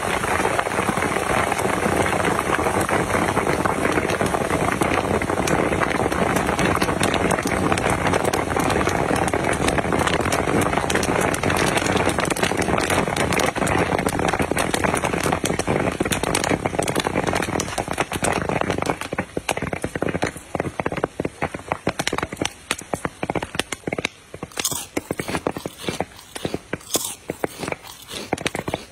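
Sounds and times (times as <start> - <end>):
popcorn popping: 0.0 - 28.9.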